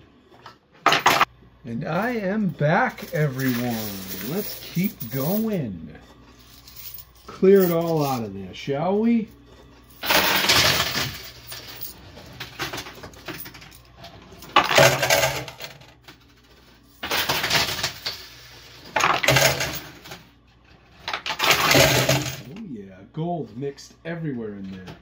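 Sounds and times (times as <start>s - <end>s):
poker chips and coins clattering: 2.8s - 8.3s, 9.9s - 20.2s, 21.0s - 22.6s.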